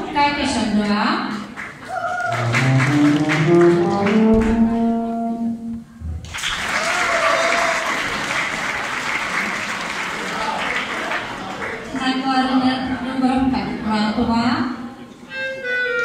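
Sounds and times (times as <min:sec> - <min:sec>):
applause: 0:01.3 - 0:04.2, 0:06.2 - 0:12.0
brass instrument rising run: 0:02.3 - 0:05.7.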